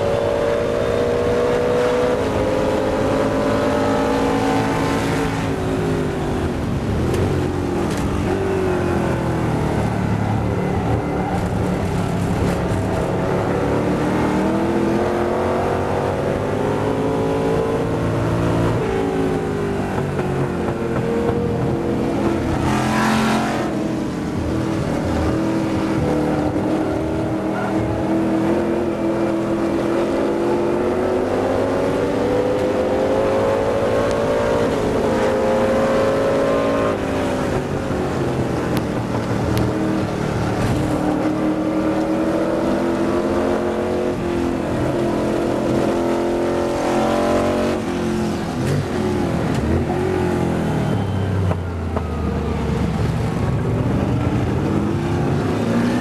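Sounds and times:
racing engine accelerating: 0.0 - 5.7, 6.6 - 56.0.

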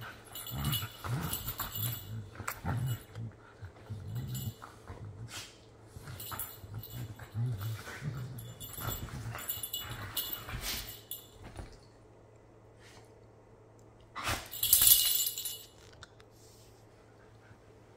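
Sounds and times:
dogs play growling: 0.0 - 11.8.

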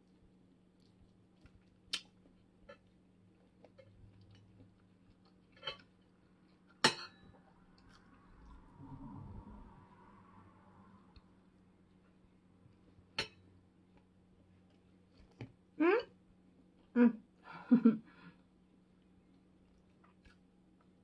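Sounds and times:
quiet chewing: 0.0 - 8.8, 11.1 - 13.2, 13.8 - 15.7, 18.2 - 21.0.

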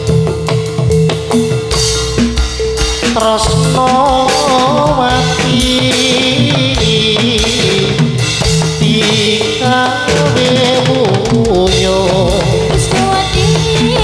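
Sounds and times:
steady drumming: 0.0 - 14.0
person singing wavering melody: 2.8 - 14.0.

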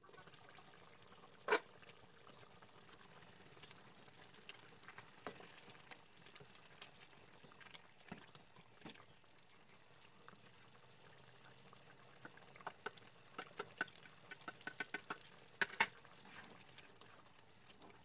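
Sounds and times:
stew bubbling in a pot: 0.0 - 18.0
soft pops and clicks: 12.2 - 16.0.

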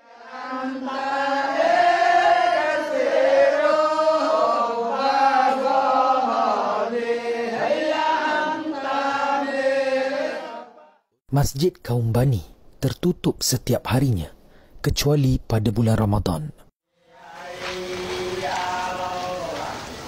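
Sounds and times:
men chanting together: 0.0 - 11.0, 17.0 - 20.0.

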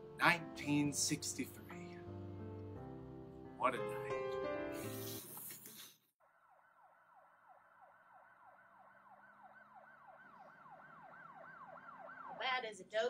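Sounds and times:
faint siren yelping: 6.5 - 12.9.

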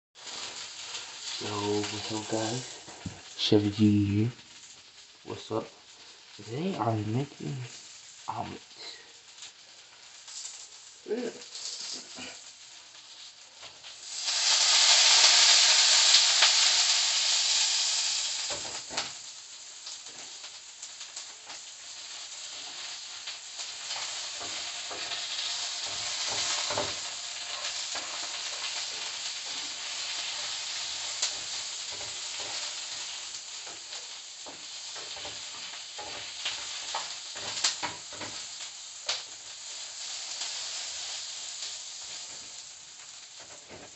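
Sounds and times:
eggs sizzling in a frying pan: 0.2 - 43.9
spatula scraping and tapping pan: 22.5 - 39.3.

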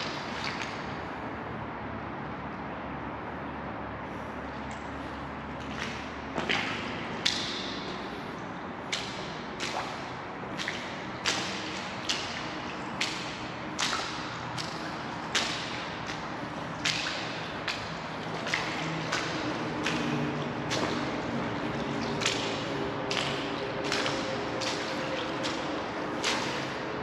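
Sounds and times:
footsteps on wet concrete: 0.0 - 1.1, 4.6 - 27.0.

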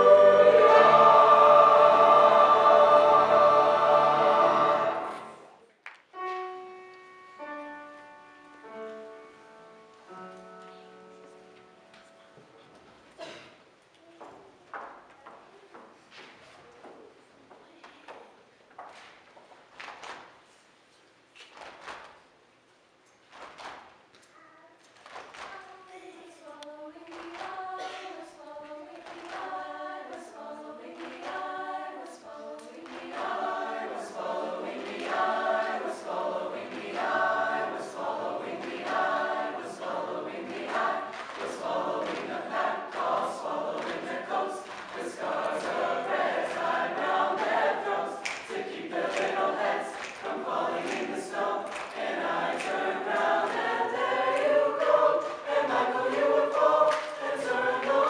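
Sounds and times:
choir singing unaccompanied: 0.0 - 5.6, 26.7 - 58.0.

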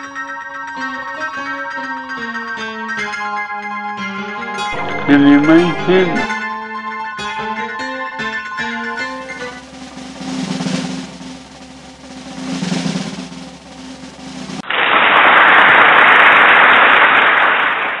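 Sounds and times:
low drum roll: 9.6 - 14.6.

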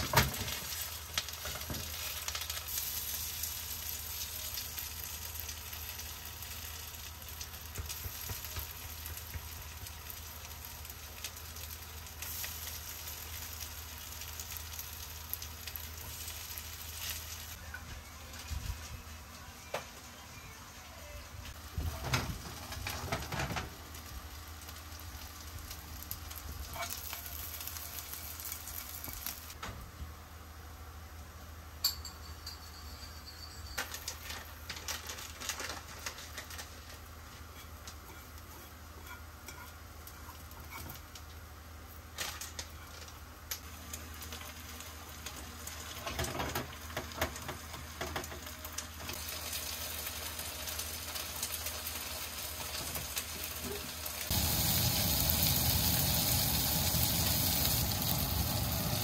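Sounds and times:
food sizzling in a frying pan: 0.0 - 18.9, 21.5 - 29.6, 33.8 - 59.0.

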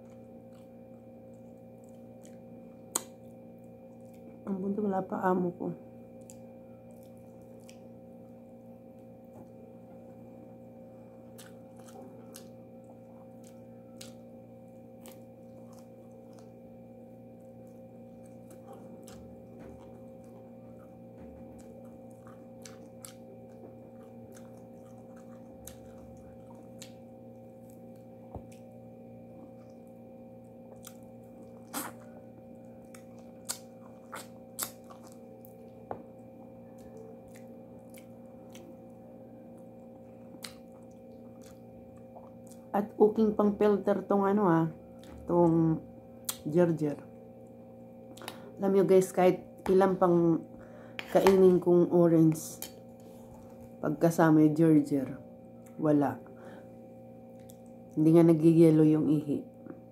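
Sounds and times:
quiet chewing: 0.0 - 4.4, 6.1 - 16.7, 17.3 - 42.7, 47.4 - 48.5, 57.2 - 58.0
steady hum: 0.0 - 59.9.

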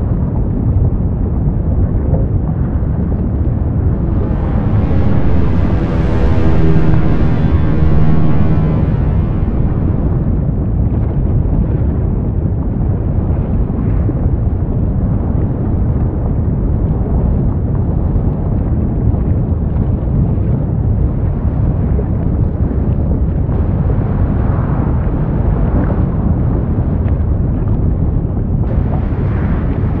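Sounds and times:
deep volcano rumble: 0.0 - 30.0
faint crackles and pops: 3.6 - 10.6.

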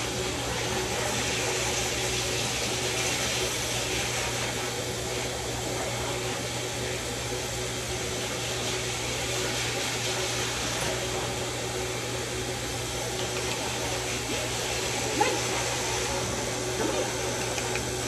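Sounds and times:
electric clippers humming: 12.1 - 18.0.

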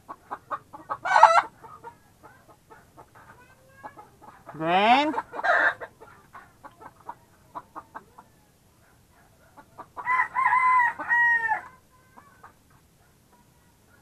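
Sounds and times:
chickens clucking: 0.0 - 14.0
rooster crowing: 10.0 - 11.8.

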